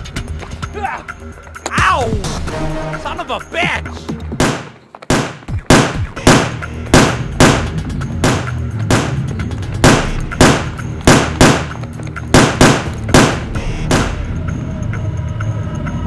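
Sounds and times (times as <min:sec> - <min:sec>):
low background music: 0:00.0 - 0:16.0
pistol shots: 0:04.4 - 0:14.3.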